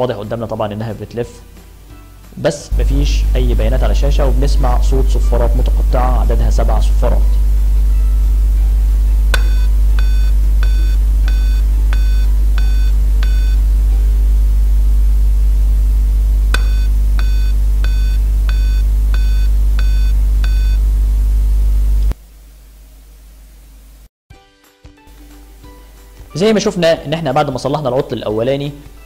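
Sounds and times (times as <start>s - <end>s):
loud steady low hum: 0.0s - 24.1s
click: 16.5s - 16.8s.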